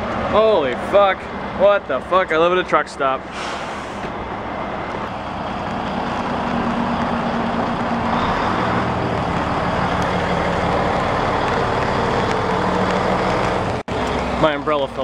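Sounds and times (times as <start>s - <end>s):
traffic on wet street: 0.0s - 15.0s
truck engine hum: 0.0s - 15.0s.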